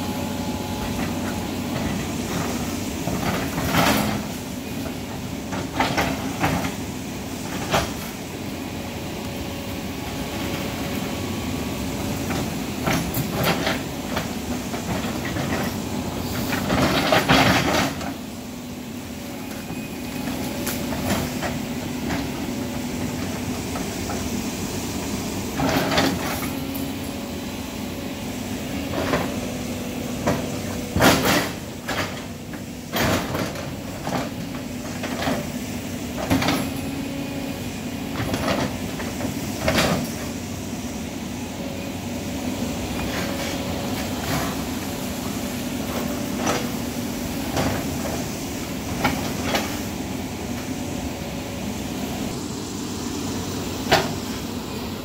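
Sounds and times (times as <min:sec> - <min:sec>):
excavator diesel engine running: 0:00.0 - 0:55.0.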